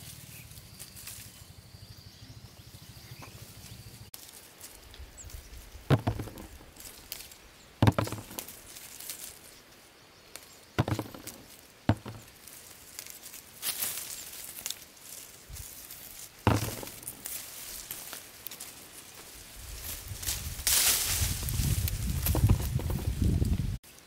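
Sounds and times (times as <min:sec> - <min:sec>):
leaves and twigs rustling: 0:00.0 - 0:01.9, 0:02.7 - 0:24.0
fruit stems snapping: 0:12.3 - 0:14.8.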